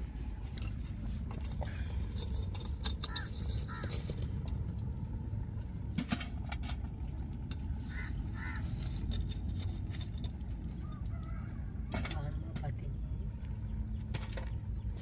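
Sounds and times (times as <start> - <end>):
steady low rumble: 0.0 - 15.0
metal poker knocking on stones: 2.2 - 4.3.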